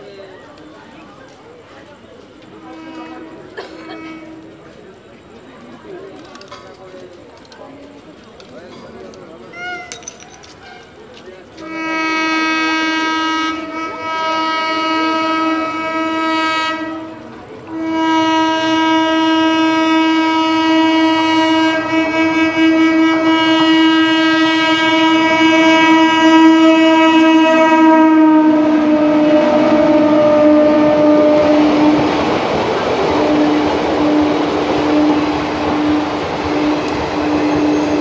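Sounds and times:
train passing at speed: 0.0s - 9.4s, 10.9s - 38.0s
train horn: 2.6s - 4.8s, 11.6s - 38.0s.

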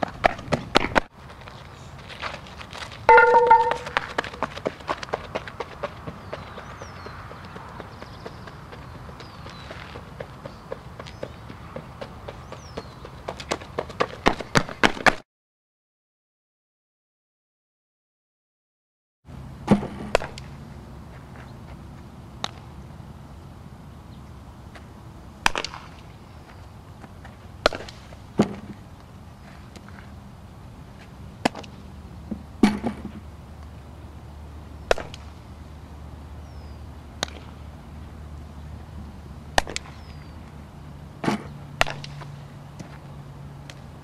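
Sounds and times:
bat hitting ball: 3.1s - 4.2s, 27.6s - 28.7s, 41.2s - 42.2s
steady low hum: 19.3s - 44.0s.

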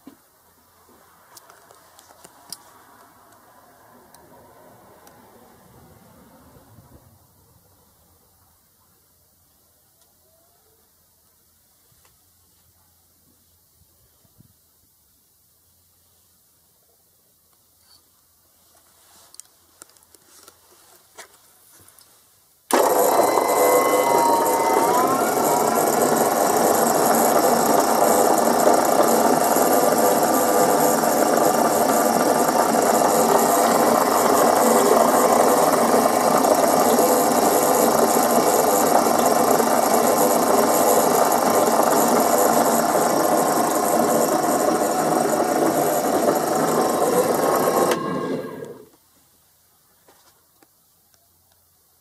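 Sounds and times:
mixer whisk spinning in bowl: 22.7s - 48.9s.

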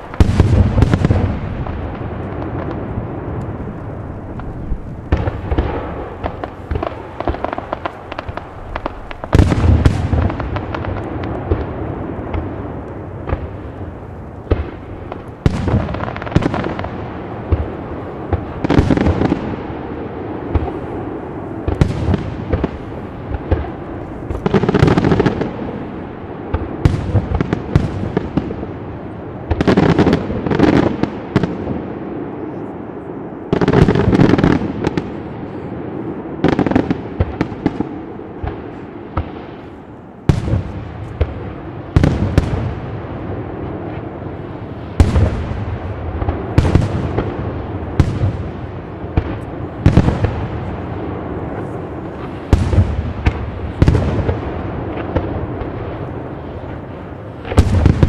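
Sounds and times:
rumble of echoes: 0.0s - 16.0s.

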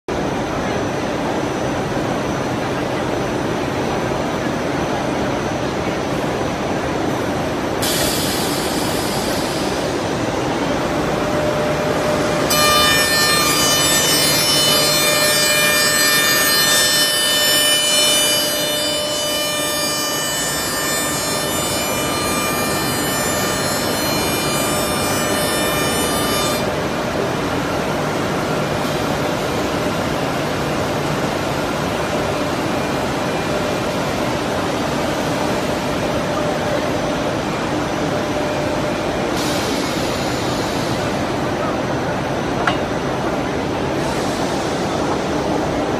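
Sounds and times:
workshop machinery noise: 0.1s - 45.9s
high-pitched whine: 4.0s - 44.9s
shaping and drilling machine running: 10.9s - 26.8s.

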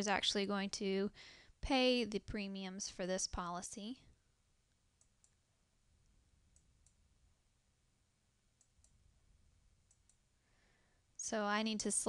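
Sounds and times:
computer mouse clicks: 4.7s - 5.4s, 9.8s - 10.2s.

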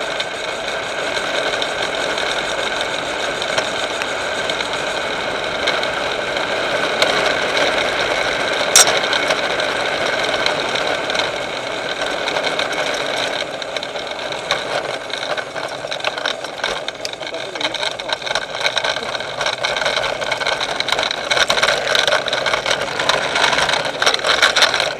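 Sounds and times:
sharp click: 8.8s - 9.0s.

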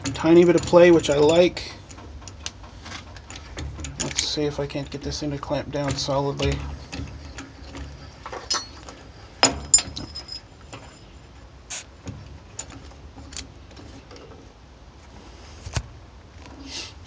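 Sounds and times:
metal clamp clinking and ticking: 0.0s - 11.1s.

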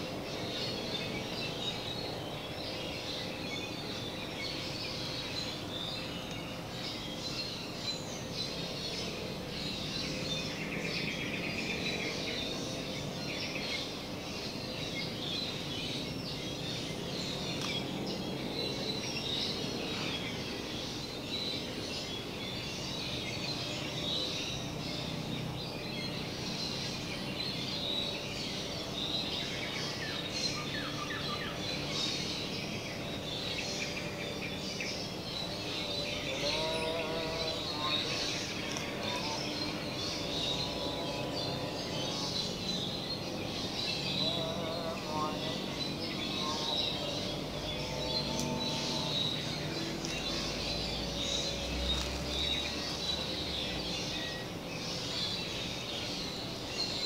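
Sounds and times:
birds chirping: 0.0s - 57.0s
low background noise: 0.0s - 57.0s.

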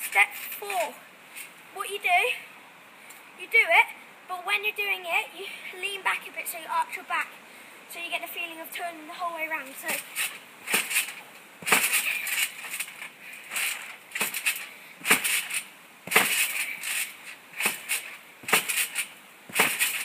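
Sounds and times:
trampoline bouncing: 9.6s - 20.0s.

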